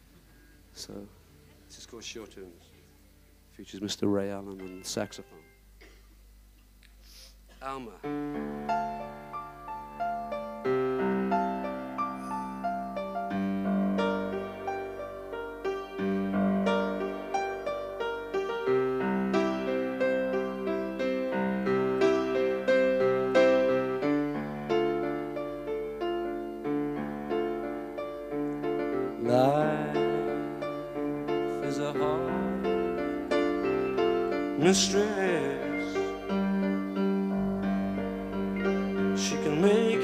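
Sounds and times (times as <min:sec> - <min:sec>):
piano chords: 0:08.0 - 0:40.0.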